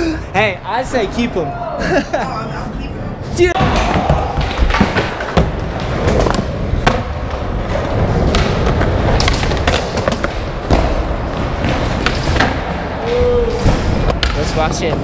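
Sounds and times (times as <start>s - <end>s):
skateboard wheels rolling on concrete: 3.1s - 15.0s
skateboards clacking on ground: 3.8s - 15.0s.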